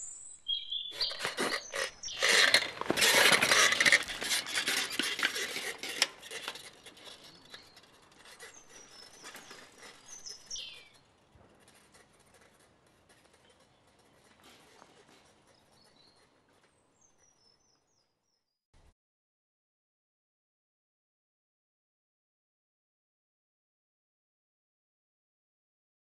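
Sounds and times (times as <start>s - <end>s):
high bird chirps: 0.0s - 2.2s, 8.5s - 11.0s
dry reeds crackling and rustling: 0.9s - 11.0s.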